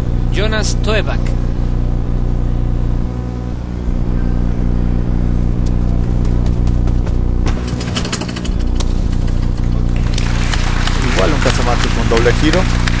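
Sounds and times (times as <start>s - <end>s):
steady low hum: 0.0s - 13.0s
sharp clicks and knocks: 5.6s - 12.6s.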